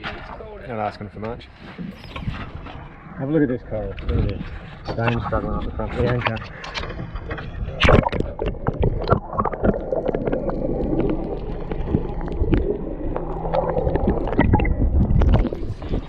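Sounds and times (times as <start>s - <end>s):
muffled underwater sloshing: 1.6s - 16.0s
splash: 7.8s - 16.0s.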